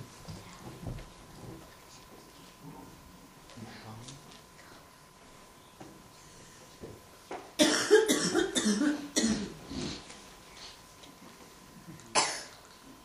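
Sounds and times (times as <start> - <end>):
person coughing: 7.6 - 9.6, 12.1 - 12.6.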